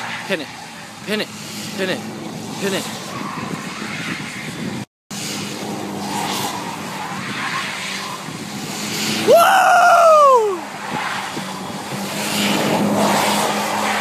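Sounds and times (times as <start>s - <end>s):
tyres skidding and squealing: 0.0s - 14.0s.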